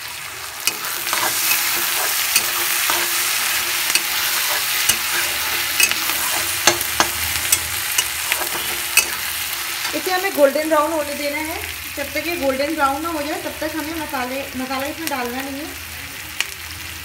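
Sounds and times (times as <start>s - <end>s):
onions sizzling in oil: 0.0s - 17.0s
metal spatula scraping pan: 0.6s - 10.3s.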